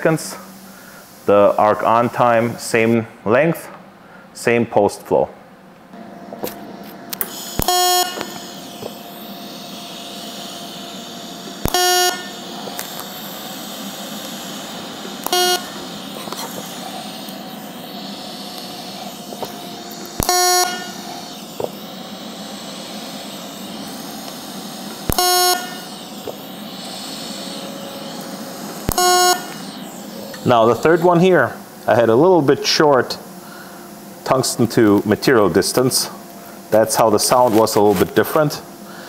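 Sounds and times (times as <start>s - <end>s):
steady hiss: 0.0s - 4.8s, 7.1s - 39.0s
welding arc buzzing: 5.9s - 39.0s
welder sharp click: 6.4s - 9.0s, 9.7s - 31.0s.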